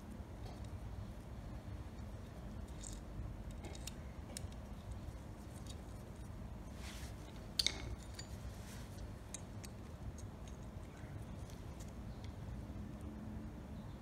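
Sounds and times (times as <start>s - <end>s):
small metallic clicks and taps: 7.2s - 12.4s.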